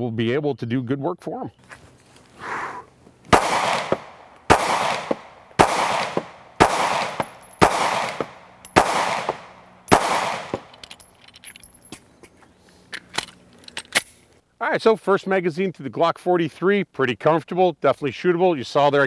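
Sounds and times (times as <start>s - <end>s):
pistol shots with echo: 3.3s - 10.8s.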